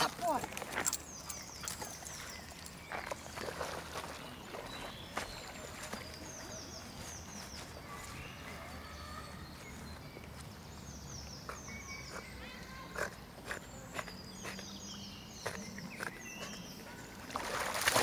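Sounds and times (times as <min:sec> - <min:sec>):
dog splashing in water: 0:00.0 - 0:06.5, 0:17.1 - 0:18.0
songbirds chirping: 0:00.0 - 0:18.0.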